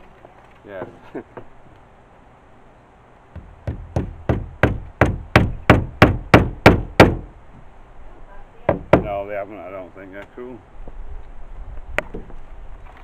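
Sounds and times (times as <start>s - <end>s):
hammer driving a nail into wood: 3.4s - 7.3s, 8.7s - 9.2s.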